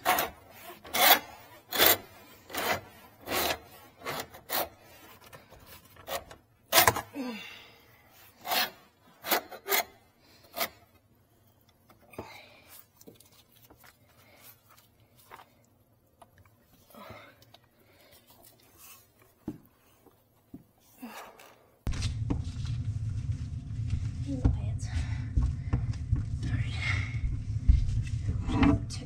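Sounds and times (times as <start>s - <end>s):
rasping scrapes on pipes: 0.0s - 6.9s, 8.3s - 11.0s.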